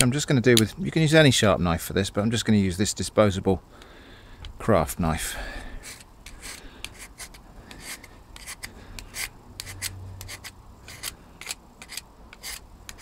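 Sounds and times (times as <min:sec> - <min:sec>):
knife scraping bark off stick: 0:05.8 - 0:13.0.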